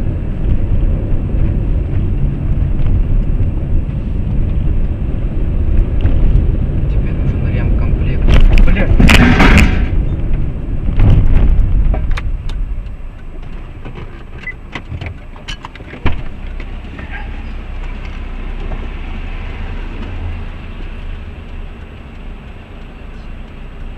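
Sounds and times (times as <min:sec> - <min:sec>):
car engine and tyres rumbling: 0:00.0 - 0:23.9
sharp knock: 0:08.3 - 0:10.0.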